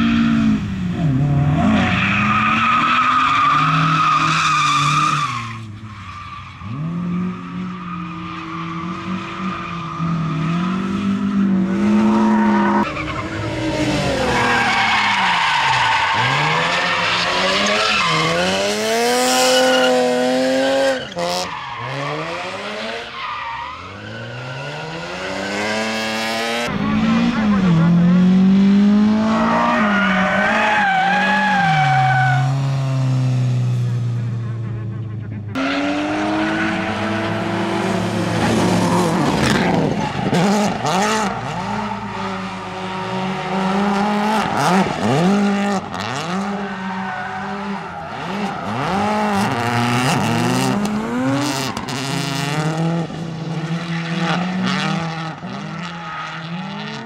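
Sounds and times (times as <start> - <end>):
rally car engines revving: 0.0 - 57.0
tyre squeal: 19.2 - 22.2.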